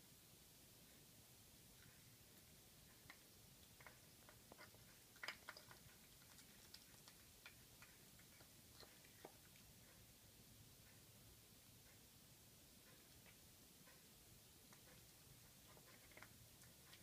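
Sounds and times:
cat chewing and licking: 1.8s - 11.1s, 12.8s - 17.0s.

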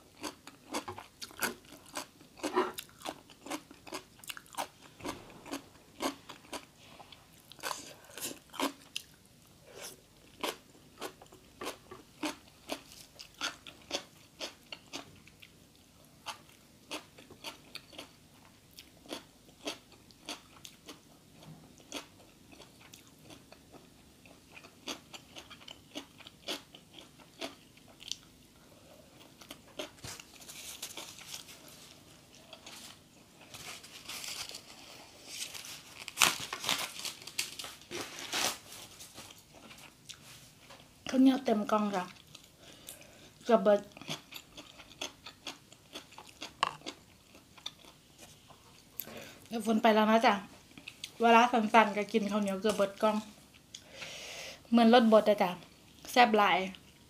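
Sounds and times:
person chewing crunchy food: 0.0s - 15.6s, 16.2s - 28.3s, 29.0s - 38.5s, 43.9s - 49.2s.

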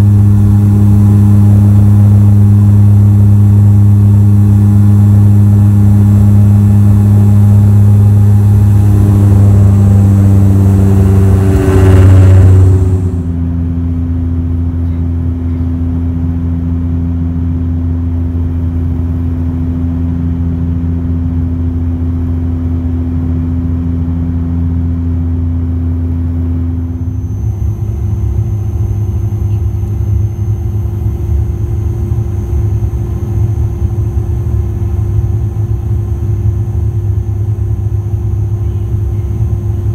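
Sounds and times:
high thin whine: 0.0s - 13.4s, 26.6s - 39.9s
turboprop engine cabin drone: 0.0s - 39.9s.

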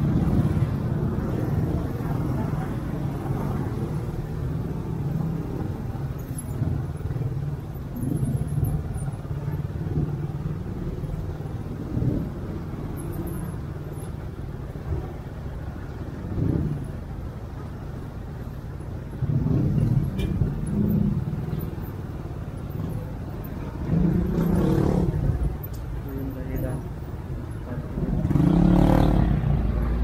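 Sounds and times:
motorcycle engine revving: 28.0s - 29.8s.

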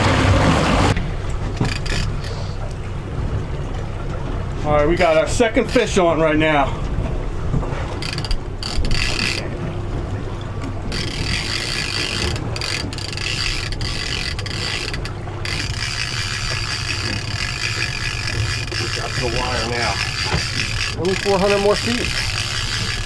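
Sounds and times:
low steady rumble: 0.0s - 23.0s
fishing reel whirring and clicking: 1.6s - 2.8s, 7.9s - 9.6s, 10.6s - 23.0s.

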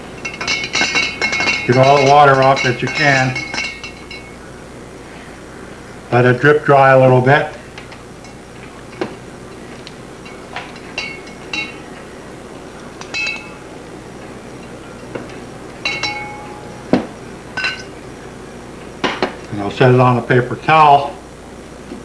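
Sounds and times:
metal plate clinking on glass jar: 0.0s - 4.4s, 10.2s - 11.9s, 13.0s - 13.6s, 15.8s - 16.8s, 17.6s - 18.0s.

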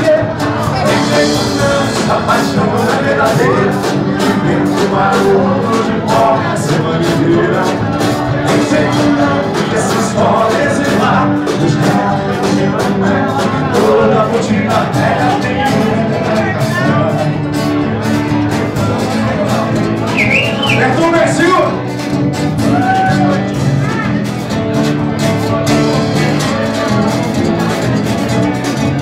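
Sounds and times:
man singing into a microphone: 0.0s - 17.5s, 18.8s - 21.8s
acoustic guitar strumming: 0.0s - 29.0s.

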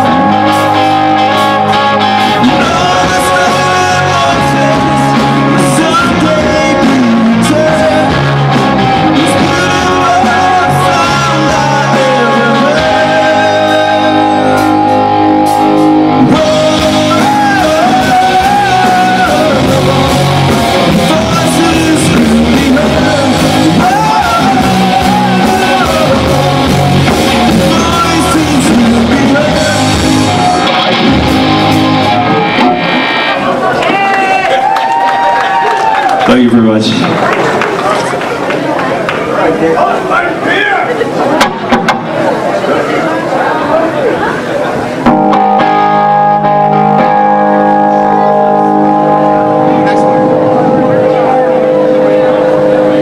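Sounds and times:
person singing: 0.0s - 32.8s
drum kit: 0.0s - 34.0s, 41.4s - 42.4s, 45.0s - 53.0s
electric bass: 0.0s - 34.1s, 44.2s - 53.0s
electric guitars: 0.0s - 53.0s.

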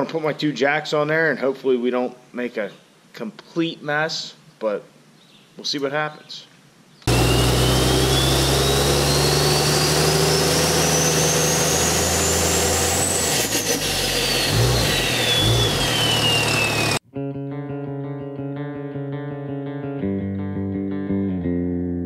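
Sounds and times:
rising whistling tone: 7.1s - 17.0s
electric guitar music: 7.1s - 22.0s.

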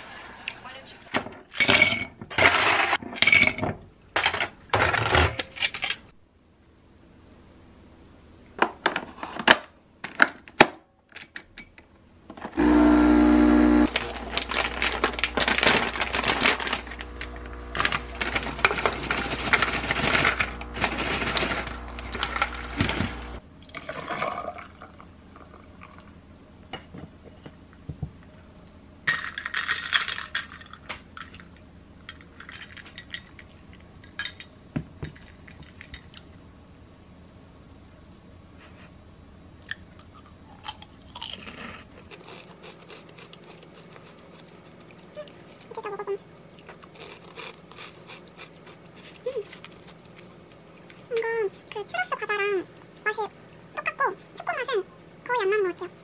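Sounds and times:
coffee machine pump buzzing: 12.6s - 23.4s
cereal rattling in plastic bowl: 13.9s - 17.0s, 17.8s - 23.2s.

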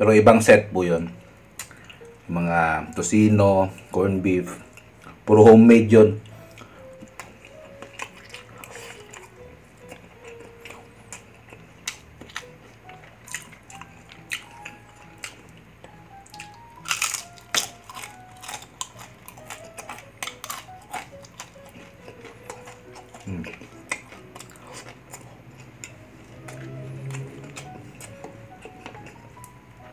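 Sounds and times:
light background music: 0.0s - 29.9s
crunching crispy fried food: 6.5s - 29.5s.

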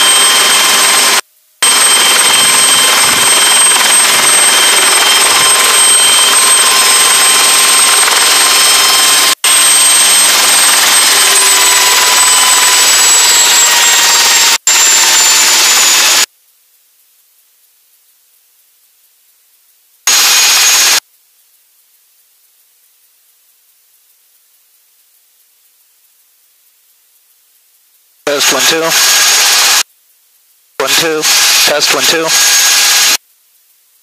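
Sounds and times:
turbine engine whine: 0.0s - 16.3s, 20.1s - 21.0s, 28.3s - 29.8s, 30.8s - 33.2s.

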